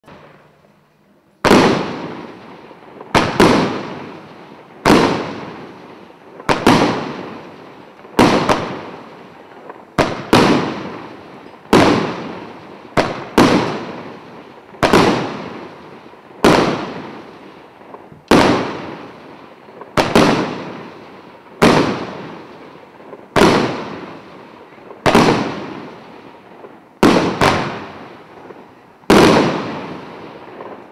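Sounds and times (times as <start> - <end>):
hissing firework trails: 0.0 - 30.9
firework cake shots: 3.0 - 21.0, 21.6 - 30.9.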